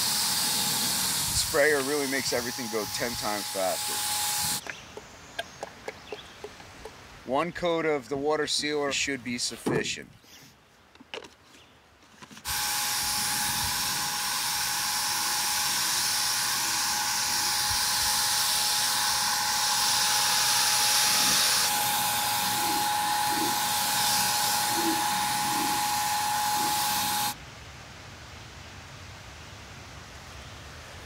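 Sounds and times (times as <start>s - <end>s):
electric paint sprayer hissing: 0.0s - 4.6s, 12.4s - 27.4s
high whine from sprayer: 0.0s - 4.6s, 12.5s - 27.4s.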